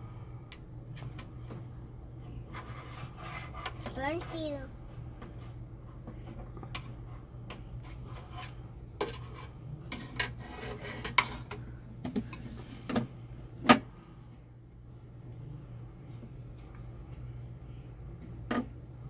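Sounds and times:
steady low hum: 0.0 - 19.0
plastic toys knocking and scraping: 5.2 - 13.0.

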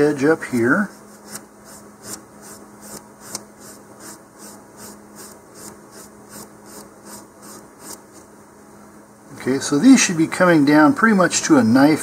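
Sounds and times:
emery board scratching: 0.0 - 8.3.

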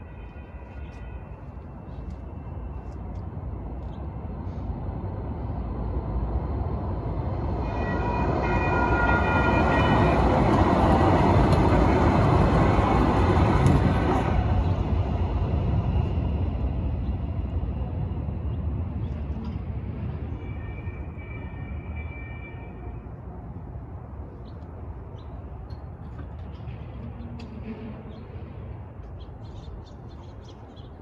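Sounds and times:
train wheels rumbling on rails: 1.8 - 21.2.

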